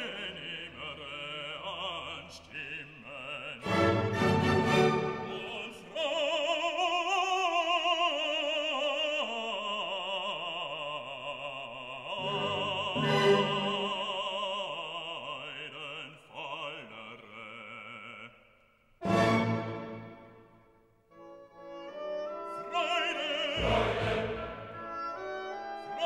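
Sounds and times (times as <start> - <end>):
operatic voice singing: 0.0 - 19.9, 22.2 - 26.0
orchestral accompaniment: 3.6 - 5.7, 12.2 - 14.1, 19.0 - 20.5, 21.2 - 26.0.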